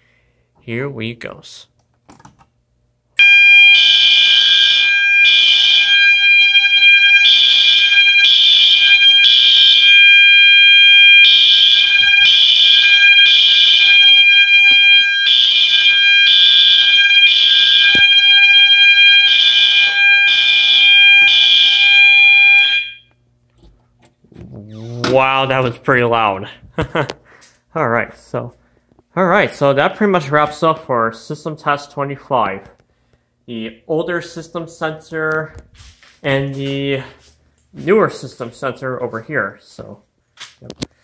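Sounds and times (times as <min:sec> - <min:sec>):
fire alarm horn blasts: 0:03.2 - 0:23.2
steady alarm tone: 0:03.2 - 0:23.2.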